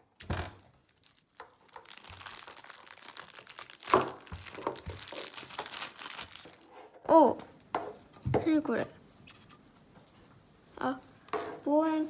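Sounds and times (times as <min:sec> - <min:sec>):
plastic bag crinkling: 0:00.2 - 0:06.9.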